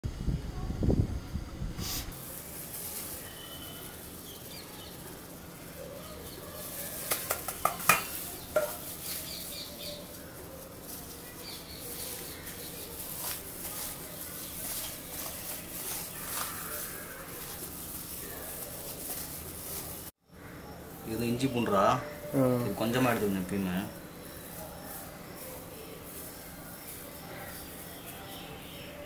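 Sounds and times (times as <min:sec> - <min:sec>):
utensils and dishes clinking: 0:02.2 - 0:20.1
faint bird chirps: 0:02.9 - 0:07.1.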